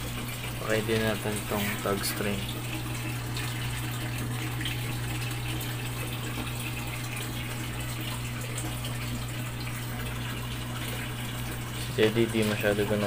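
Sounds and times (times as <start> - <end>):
water flowing and splashing: 0.0 - 13.0.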